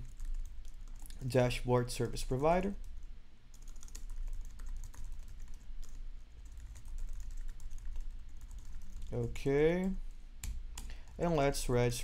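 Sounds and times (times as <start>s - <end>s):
computer keyboard typing: 0.0s - 1.2s, 3.5s - 9.2s
low steady hum: 0.0s - 12.0s.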